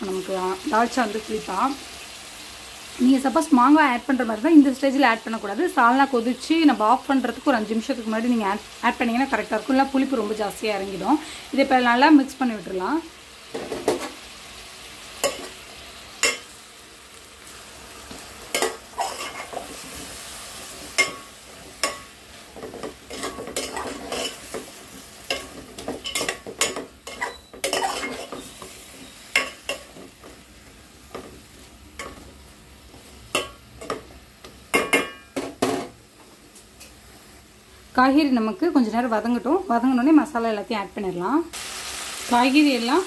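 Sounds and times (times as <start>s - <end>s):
vegetables sizzling in oil: 0.0s - 43.0s
metal spoon scraping a metal pot: 18.6s - 19.6s, 23.1s - 24.5s, 26.0s - 28.6s.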